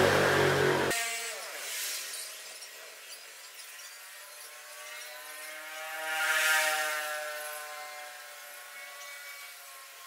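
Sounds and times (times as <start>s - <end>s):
motor running: 0.0s - 1.5s.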